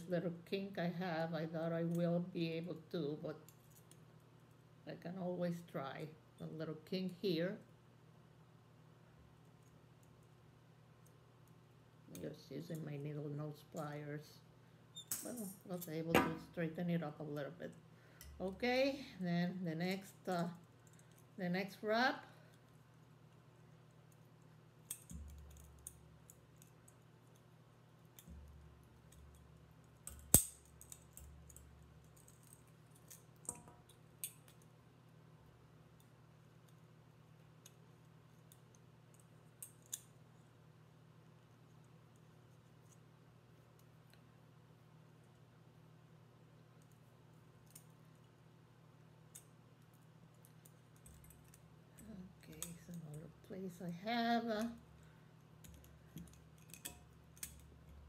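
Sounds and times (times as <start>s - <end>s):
low steady hum: 0.0s - 58.0s
wire clicking while coiled: 19.9s - 40.6s, 46.6s - 48.4s, 49.0s - 58.0s
wire clicking as bent by hand: 22.6s - 34.7s, 55.6s - 58.0s.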